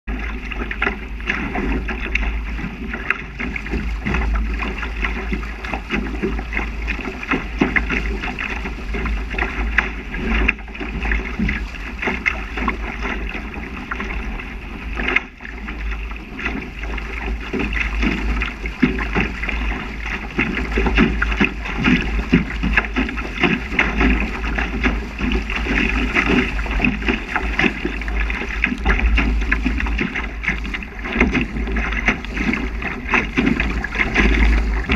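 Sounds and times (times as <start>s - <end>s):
water rushing past hull: 0.1s - 34.9s
wind buffeting microphone: 0.1s - 34.9s.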